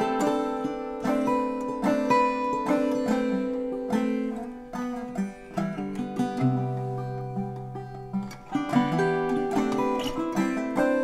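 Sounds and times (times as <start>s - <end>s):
fingerpicked classical guitar: 0.0s - 11.0s
mandolin: 0.0s - 11.0s.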